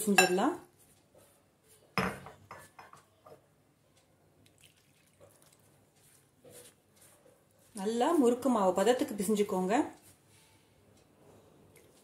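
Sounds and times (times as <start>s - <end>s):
hand mixing damp flour: 4.7s - 9.2s.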